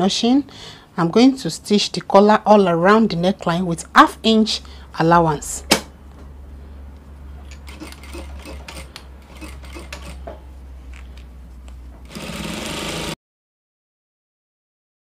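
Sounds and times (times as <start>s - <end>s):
sewing machine humming: 7.6s - 10.2s, 12.0s - 13.2s
sewing machine stitching: 7.7s - 10.2s, 12.0s - 13.2s.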